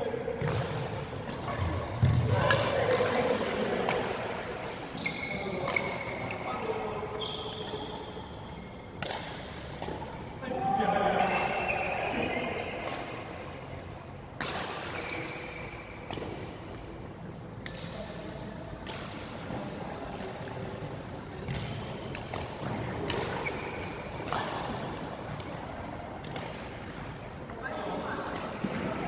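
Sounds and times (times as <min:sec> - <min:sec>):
shoes squeaking on court: 0:04.6 - 0:08.8, 0:09.4 - 0:10.5, 0:11.2 - 0:12.9, 0:14.8 - 0:16.4, 0:17.1 - 0:18.1, 0:19.4 - 0:24.6
racket striking shuttlecock: 0:08.9 - 0:10.2, 0:14.3 - 0:15.0, 0:21.5 - 0:25.5.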